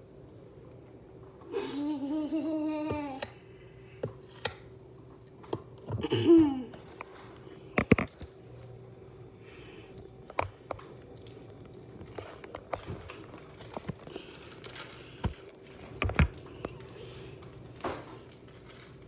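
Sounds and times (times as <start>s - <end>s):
faint steady hum: 0.0s - 19.0s
child laughing: 1.5s - 3.2s, 6.0s - 6.8s.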